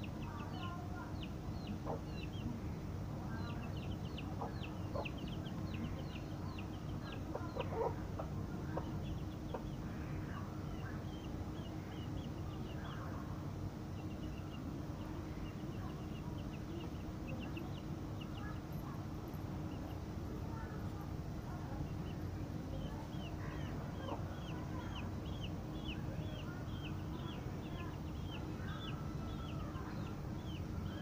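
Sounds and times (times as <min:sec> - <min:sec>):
chicks peeping: 0:00.0 - 0:31.0
low background rumble: 0:00.0 - 0:31.0
hen clucking: 0:01.6 - 0:02.5, 0:03.4 - 0:09.8.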